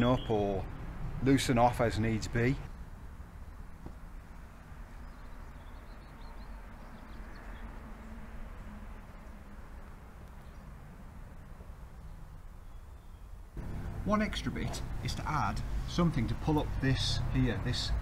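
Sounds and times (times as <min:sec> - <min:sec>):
faint bird chirps: 0:00.0 - 0:00.6, 0:05.0 - 0:07.7
low steady rumble: 0:13.6 - 0:17.6.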